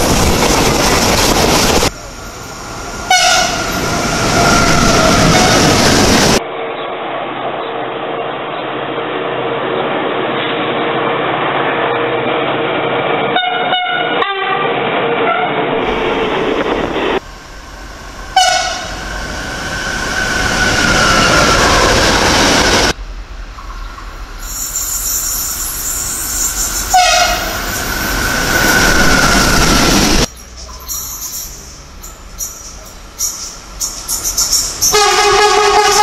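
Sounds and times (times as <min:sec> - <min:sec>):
locomotive rumbling past: 0:00.0 - 0:14.1, 0:14.7 - 0:36.0
train rushing past: 0:00.0 - 0:36.0
train horn blast: 0:03.0 - 0:03.8, 0:13.4 - 0:15.7, 0:18.3 - 0:19.0, 0:26.9 - 0:27.6, 0:34.8 - 0:36.0
train horn toots: 0:03.0 - 0:03.8, 0:13.4 - 0:15.6, 0:18.3 - 0:19.0, 0:26.9 - 0:27.7, 0:34.8 - 0:36.0.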